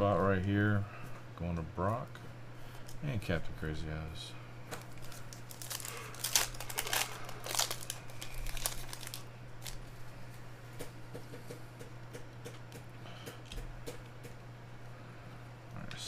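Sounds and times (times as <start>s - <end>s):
foil wrapper tearing and crinkling: 4.8s - 9.9s.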